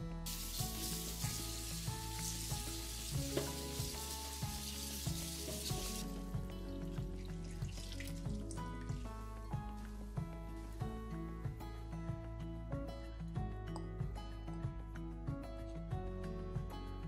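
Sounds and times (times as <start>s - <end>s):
background music with beat: 0.0s - 17.0s
tap water running into colander: 0.3s - 6.2s, 7.0s - 9.0s.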